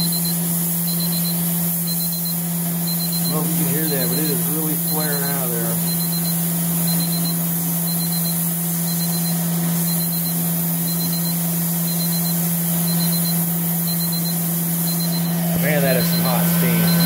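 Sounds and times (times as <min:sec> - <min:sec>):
constant low hum: 0:03.0 - 0:06.3, 0:15.0 - 0:17.0
steam hissing: 0:13.4 - 0:17.0.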